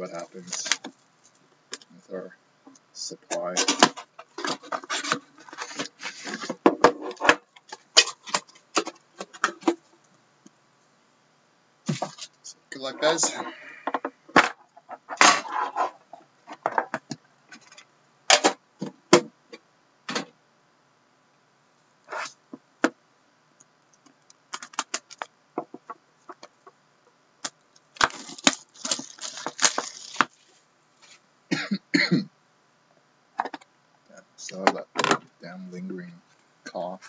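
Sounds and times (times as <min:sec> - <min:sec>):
cardboard scraping and rustling: 0:03.6 - 0:07.4, 0:13.0 - 0:16.9, 0:28.0 - 0:31.2.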